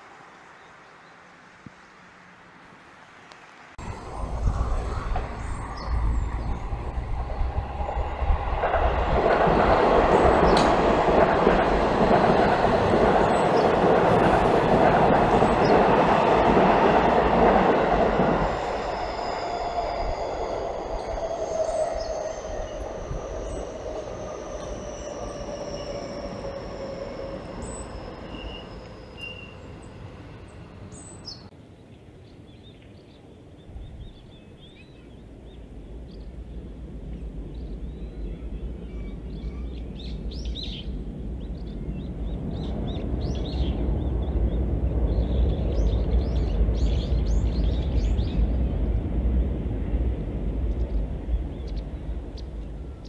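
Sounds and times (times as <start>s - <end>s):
electric train passing: 0.0s - 31.5s, 35.2s - 53.0s
low rumble: 3.8s - 15.9s.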